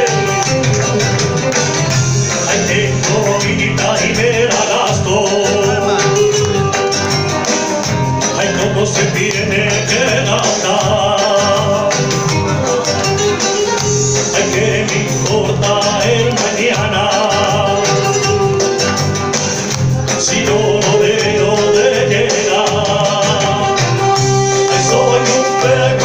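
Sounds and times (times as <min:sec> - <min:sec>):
backing track with guitar and beat: 0:00.0 - 0:26.0
man singing into a microphone: 0:02.2 - 0:06.8, 0:08.2 - 0:12.9, 0:13.8 - 0:18.8, 0:20.0 - 0:26.0.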